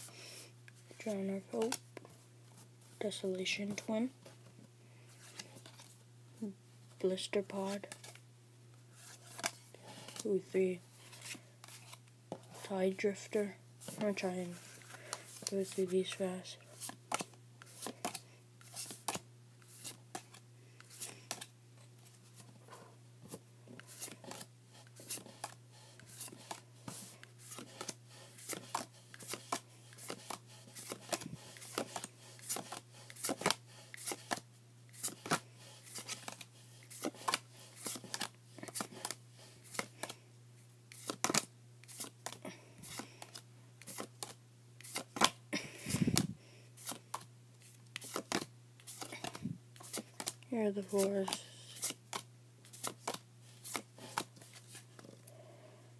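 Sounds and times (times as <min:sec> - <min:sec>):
cards sliding and clicking: 0:09.0 - 0:10.3, 0:11.0 - 0:12.7, 0:16.8 - 0:21.5, 0:23.2 - 0:40.2, 0:40.9 - 0:55.1.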